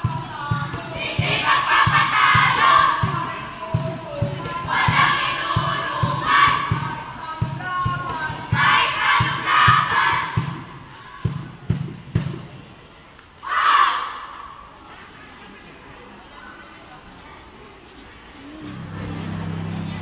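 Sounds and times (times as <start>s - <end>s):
children chanting and shouting: 0.0s - 11.6s, 13.4s - 15.2s, 18.4s - 20.0s
loud group shout: 8.6s - 10.4s, 13.4s - 14.2s.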